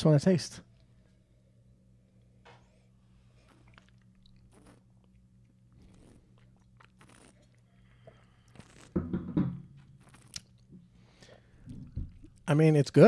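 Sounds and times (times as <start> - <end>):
low hum: 0.0 - 12.8
people sipping wine: 2.7 - 9.0.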